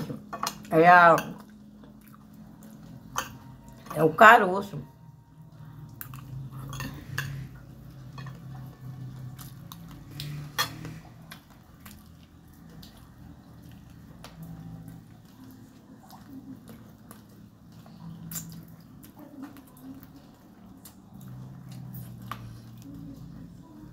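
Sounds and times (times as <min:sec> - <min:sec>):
low steady hum: 0:00.0 - 0:23.9
fork scraping on glass plate: 0:10.2 - 0:11.2.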